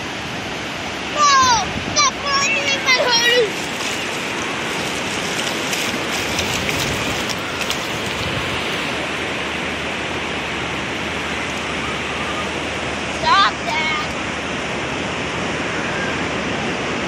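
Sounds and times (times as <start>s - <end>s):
ocean surf washing over beach: 0.0s - 17.0s
faint crackles: 3.4s - 9.0s.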